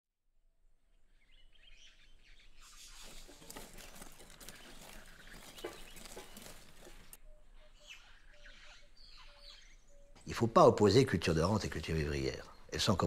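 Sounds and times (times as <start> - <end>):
birds chirping: 0.9 - 13.0
hand hoes scraping soil: 2.7 - 7.2.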